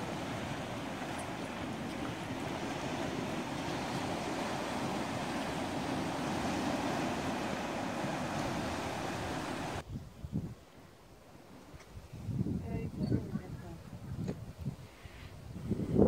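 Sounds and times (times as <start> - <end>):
surf washing over rocks: 0.0 - 9.8
wind: 0.0 - 16.0.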